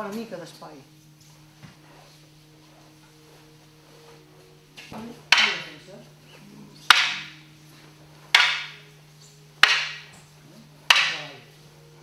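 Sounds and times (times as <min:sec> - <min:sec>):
wooden staffs clacking: 0:04.7 - 0:11.6.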